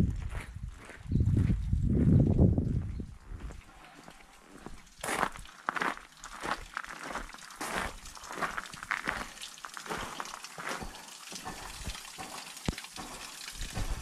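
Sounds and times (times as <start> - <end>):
footsteps on stone paving: 0.0 - 14.0
water trickling into stone basin: 3.1 - 14.0
water splashing onto stones: 4.2 - 14.0.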